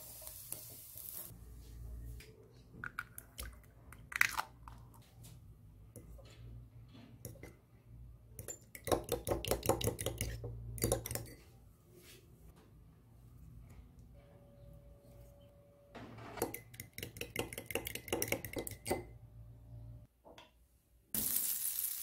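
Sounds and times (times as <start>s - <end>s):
egg cracking into bowl: 2.8s - 4.8s.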